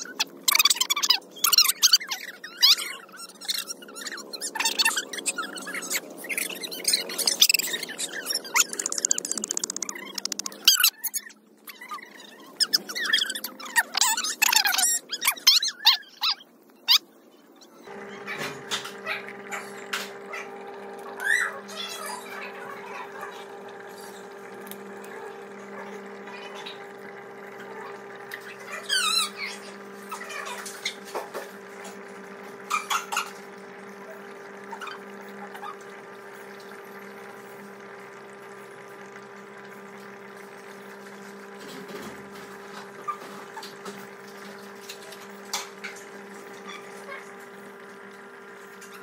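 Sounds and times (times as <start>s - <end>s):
high chirps: 0.0s - 11.4s
water trickling and bubbling: 0.0s - 16.1s, 17.8s - 49.0s
sharp clicks: 8.6s - 10.8s.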